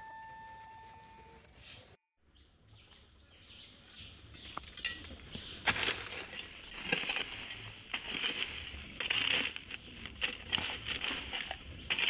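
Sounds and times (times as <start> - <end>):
faint birds chirping: 0.7 - 12.0.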